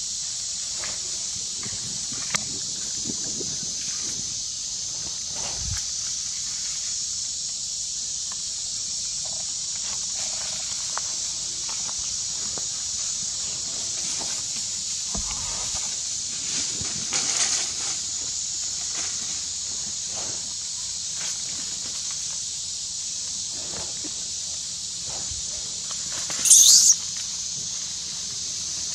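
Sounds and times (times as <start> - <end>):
high-pitched outdoor hiss: 0.0 - 28.9
rustles in dry leaves: 9.1 - 22.3.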